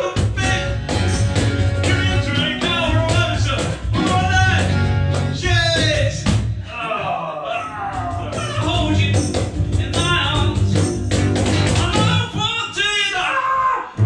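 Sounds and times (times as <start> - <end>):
cajon beaten by hand: 0.0 - 6.6, 7.9 - 12.5
man singing: 0.0 - 11.0, 11.7 - 13.6
plucked double bass: 0.2 - 6.4, 7.9 - 12.4
strummed acoustic guitar: 8.0 - 12.4.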